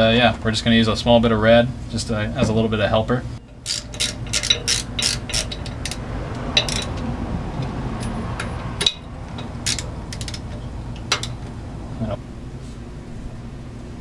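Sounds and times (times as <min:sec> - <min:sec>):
metal clinks: 0:03.4 - 0:11.6
socket ratchet clicking: 0:03.5 - 0:11.4.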